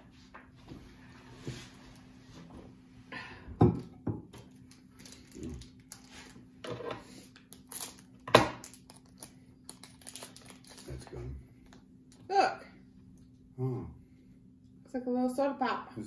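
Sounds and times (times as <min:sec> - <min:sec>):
candy packet rustling: 0:04.5 - 0:06.4, 0:07.3 - 0:11.3.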